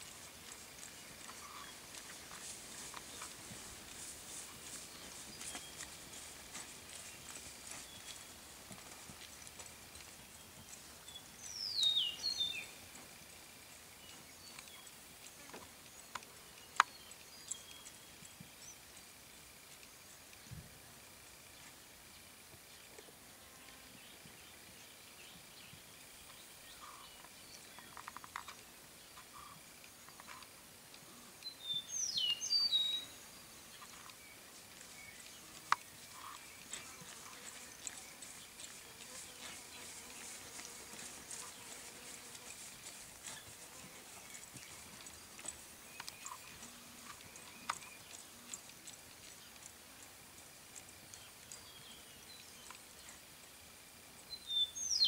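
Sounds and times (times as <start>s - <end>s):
hoof falls on grass: 0.0s - 10.9s, 34.8s - 48.0s
outdoor background noise: 0.0s - 55.0s.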